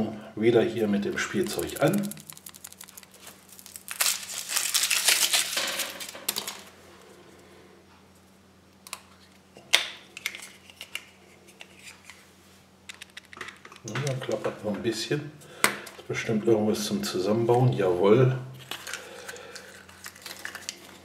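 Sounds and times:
foil wrapper crinkling: 1.2s - 6.7s, 18.6s - 21.0s
chocolate shell cracking: 1.3s - 6.6s.

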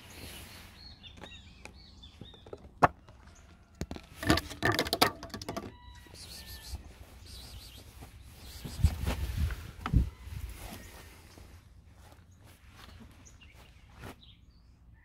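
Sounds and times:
cat knocking and scraping on plastic: 1.6s - 3.2s, 3.8s - 5.8s.

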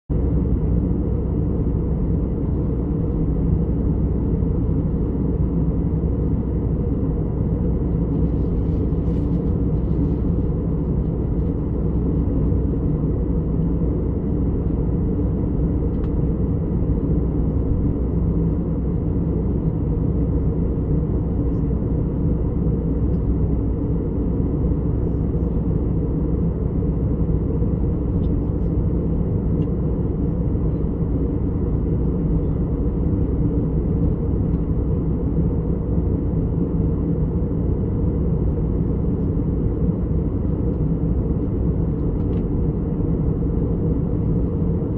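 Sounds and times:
airliner cabin rumble: 0.1s - 44.9s.

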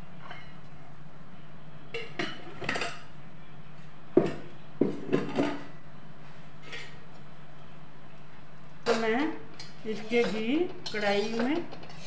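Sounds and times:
metal kitchenware clanking: 6.6s - 7.0s, 8.8s - 12.0s.

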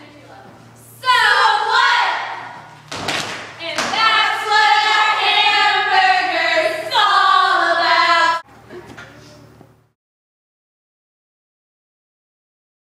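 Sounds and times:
group of voices singing: 3.6s - 8.4s.

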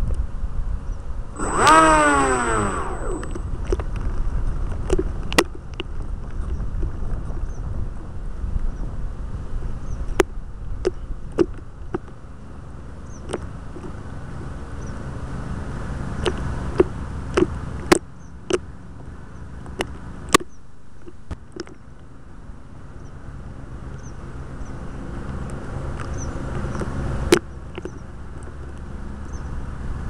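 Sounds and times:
sharp clicks and knocks: 1.4s - 7.0s, 19.6s - 22.1s.

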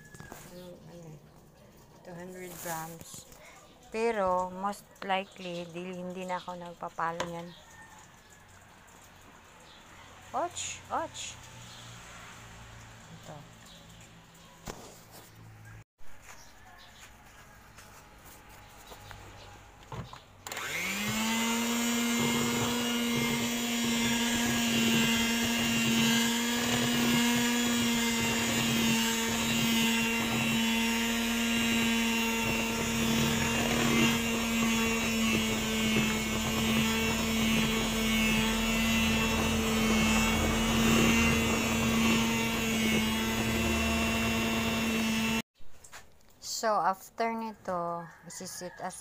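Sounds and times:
electric hand mixer whining: 19.8s - 45.5s.

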